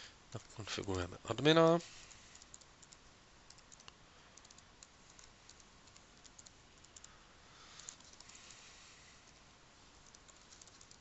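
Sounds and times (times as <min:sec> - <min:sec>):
typing on computer keyboard: 0:02.3 - 0:07.1, 0:07.8 - 0:08.4, 0:10.0 - 0:11.0.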